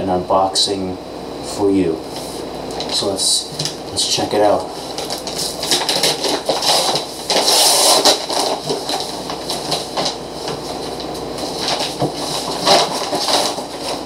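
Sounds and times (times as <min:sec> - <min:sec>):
paper wrapper tearing and rustling: 0:04.4 - 0:14.0.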